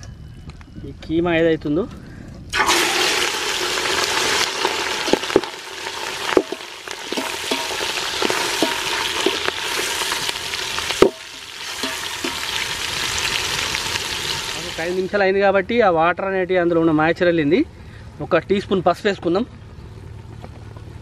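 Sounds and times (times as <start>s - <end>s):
meat sizzling in hot oil: 2.6s - 15.1s
steel spoon clinking against pot: 6.4s - 9.4s, 11.0s - 12.5s.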